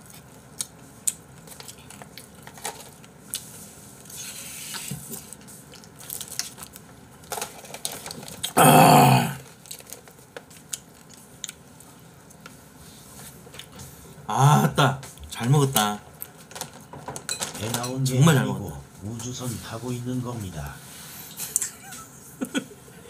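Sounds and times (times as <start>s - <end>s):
dishes and chopsticks clattering: 17.1s - 18.1s.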